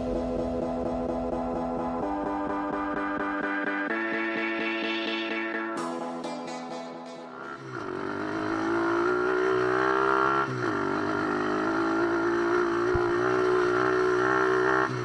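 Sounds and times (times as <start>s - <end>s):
motorbike engine revving high: 7.3s - 15.0s.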